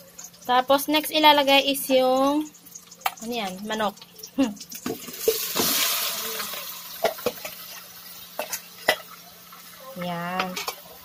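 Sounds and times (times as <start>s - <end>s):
chicken sizzling in hot oil: 0.0s - 11.0s
metal ladle knocking on pots: 7.0s - 7.6s.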